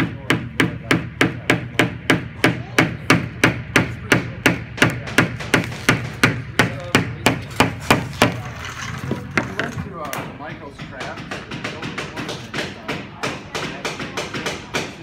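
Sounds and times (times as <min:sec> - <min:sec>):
hammer tapping on wood: 0:09.4 - 0:15.0.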